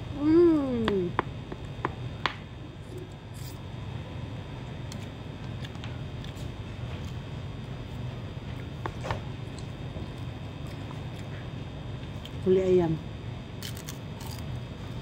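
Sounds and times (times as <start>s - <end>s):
steady low hum: 0.0s - 15.0s
person humming: 0.1s - 1.2s.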